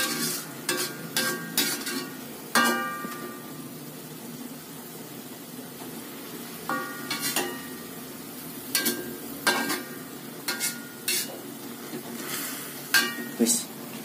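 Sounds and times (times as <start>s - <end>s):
vegetables sizzling in a wok: 0.0s - 14.0s
metal spatula knocking on pan: 6.7s - 7.7s.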